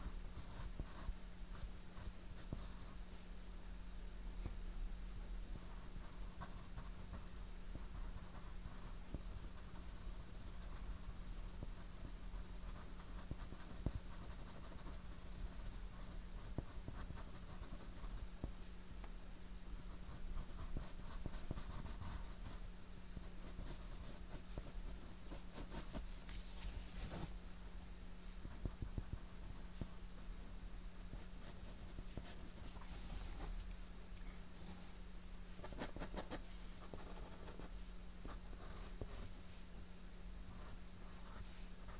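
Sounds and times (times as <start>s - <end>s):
pencil scratching on paper: 7.9s - 17.8s, 23.4s - 27.3s, 31.1s - 33.5s, 35.6s - 37.7s.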